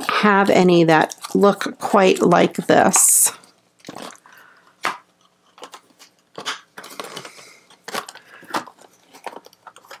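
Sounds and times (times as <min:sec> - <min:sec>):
crinkly rustle: 0:05.2 - 0:10.0.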